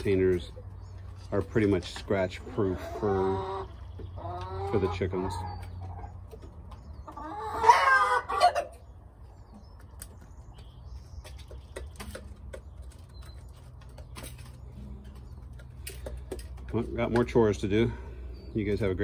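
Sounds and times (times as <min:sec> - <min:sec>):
chicken squawking: 0:02.4 - 0:06.2, 0:07.1 - 0:08.9
chickens pecking grain from a pan: 0:09.3 - 0:17.7.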